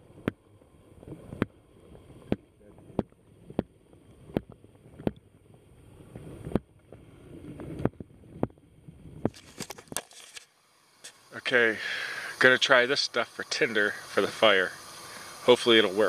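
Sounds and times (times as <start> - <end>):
low underwater water noise: 0.0 - 16.0
underwater clicks and knocks: 2.3 - 5.2.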